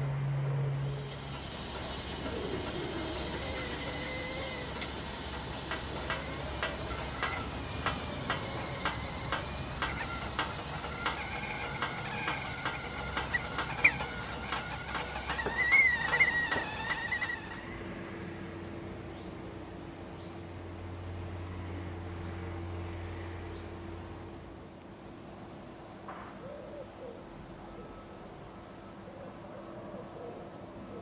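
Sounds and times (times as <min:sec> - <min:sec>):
gas stove low rush: 0:00.7 - 0:18.0
kettle ticks and pops: 0:04.6 - 0:17.3
kettle whistle: 0:15.0 - 0:17.8.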